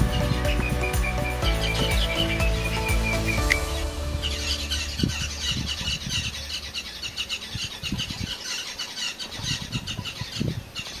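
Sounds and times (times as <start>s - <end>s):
rapid high chirps: 0.0s - 7.8s
low rumble gusts: 3.2s - 8.8s.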